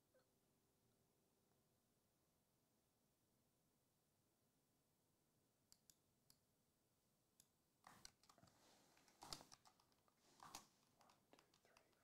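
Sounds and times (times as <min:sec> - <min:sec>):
typing on computer keyboard: 0:07.8 - 0:12.0.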